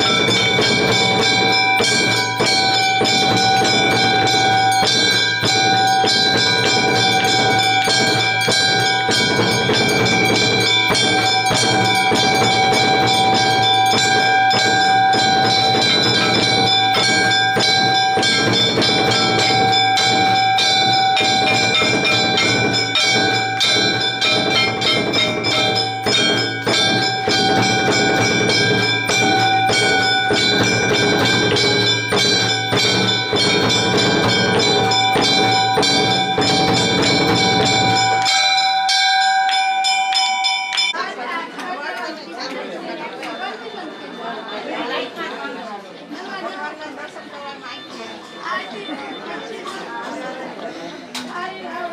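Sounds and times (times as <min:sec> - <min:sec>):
low steady din: 0:00.0 - 0:40.9
temple bells ringing rapidly: 0:00.0 - 0:50.6.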